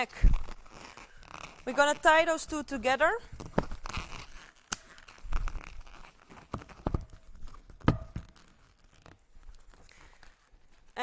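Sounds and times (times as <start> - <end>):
rubbery rubbing of balloons: 0.0 - 11.0
balloons knocking: 6.4 - 8.5.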